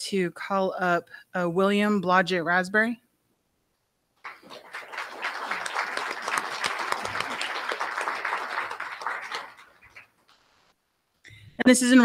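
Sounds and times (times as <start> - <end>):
audience applauding: 4.2 - 10.4.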